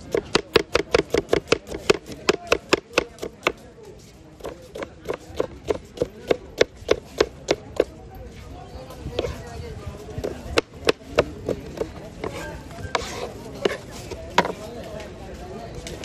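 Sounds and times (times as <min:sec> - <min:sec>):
knife chopping on cutting board: 0:00.1 - 0:03.6, 0:04.4 - 0:07.9.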